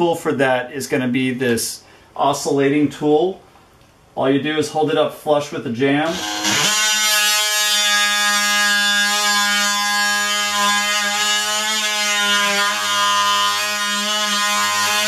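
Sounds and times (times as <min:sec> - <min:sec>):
multi-tool cutting wood: 0:06.0 - 0:15.0.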